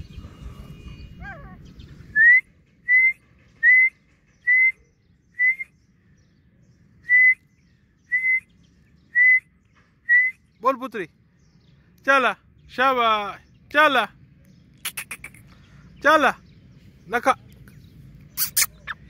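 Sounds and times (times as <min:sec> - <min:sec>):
short clear whistles: 0:02.2 - 0:05.8, 0:07.0 - 0:07.5, 0:08.1 - 0:08.5, 0:09.1 - 0:10.5, 0:18.4 - 0:19.0.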